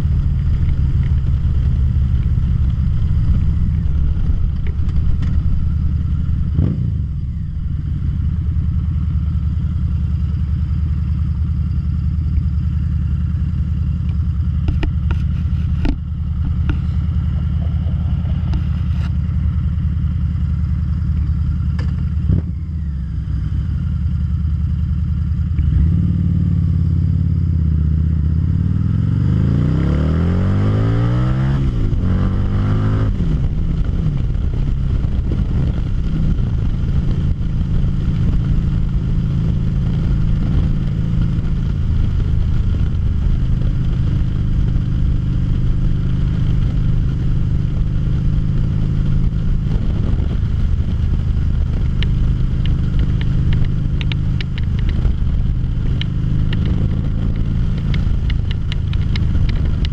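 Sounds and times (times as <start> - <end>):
motorcycle engine accelerating: 0.0 - 59.9
wind rush: 48.7 - 59.9.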